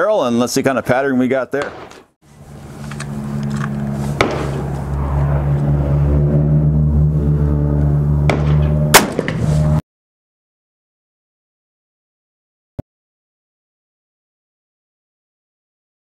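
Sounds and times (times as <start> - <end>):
loud gunshot: 1.6 - 2.0, 4.2 - 4.6, 8.3 - 9.4
low engine drone: 2.3 - 9.8.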